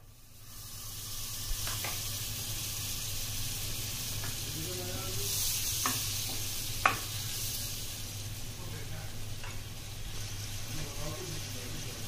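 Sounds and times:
food sizzling in hot oil: 0.0s - 12.0s.

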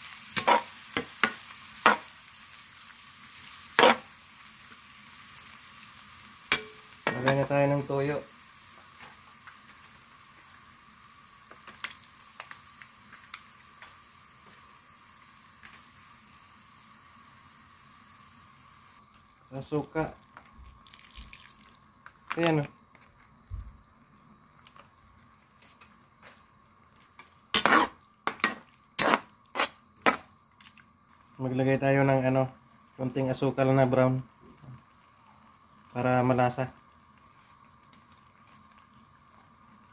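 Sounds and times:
squid sizzling in a wok: 0.0s - 39.9s
metal spatula scraping a pan: 0.3s - 2.1s, 3.7s - 4.1s, 27.5s - 30.3s
small pops and crackles: 11.4s - 14.7s.

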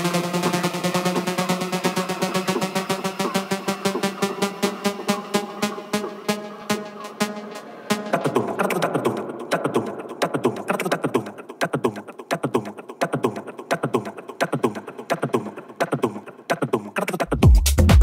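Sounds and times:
clicky percussion loop: 0.0s - 18.0s
deep kick and bassline: 17.3s - 18.0s.

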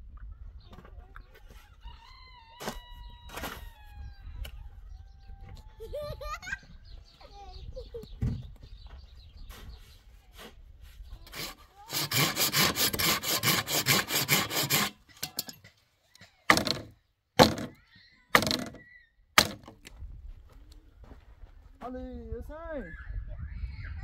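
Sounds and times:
rasping cutting strokes on root: 11.2s - 15.6s
loud strokes into wood: 11.3s - 15.6s, 16.5s - 18.8s, 19.4s - 19.9s.

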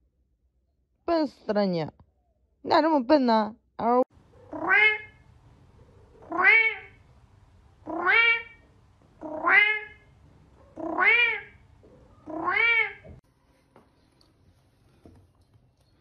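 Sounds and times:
cat meowing: 4.5s - 5.2s, 6.2s - 7.0s, 7.9s - 8.6s, 9.2s - 10.1s, 10.7s - 11.6s, 12.2s - 13.2s.

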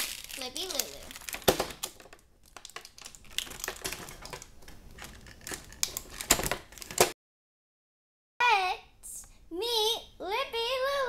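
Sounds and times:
plastic crinkling: 0.0s - 7.0s.

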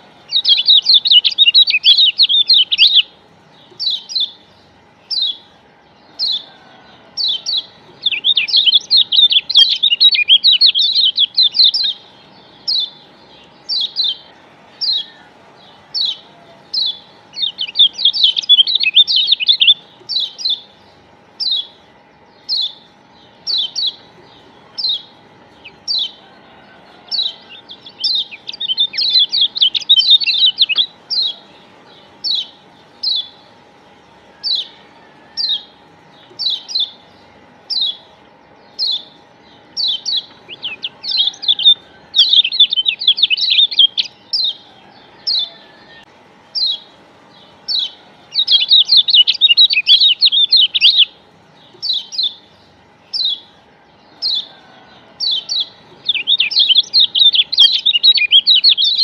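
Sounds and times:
bird fast high twittering: 0.0s - 5.5s, 7.2s - 15.2s, 15.9s - 21.8s, 27.1s - 31.4s, 38.7s - 44.6s, 47.6s - 52.5s, 55.2s - 59.0s
bird high call notes: 0.0s - 59.0s.

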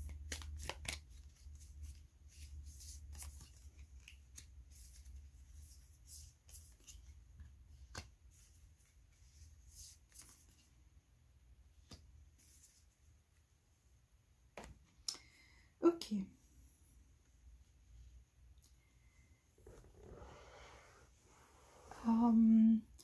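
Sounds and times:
cards flicking and snapping: 0.0s - 2.0s, 7.8s - 8.2s, 11.8s - 12.1s.

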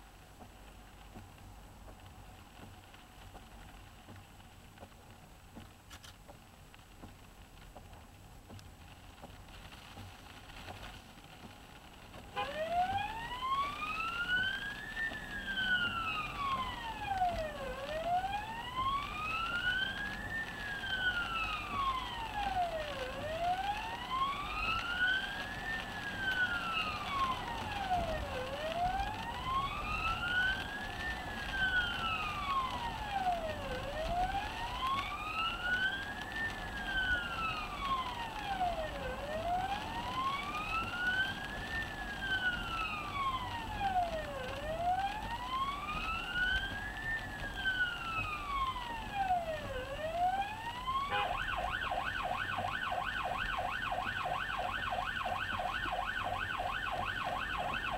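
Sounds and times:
ambulance siren wailing: 12.3s - 57.9s.

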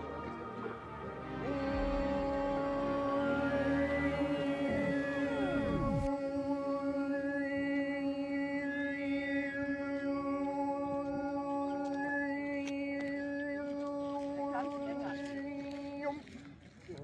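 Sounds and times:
didgeridoo drone: 0.0s - 11.4s.

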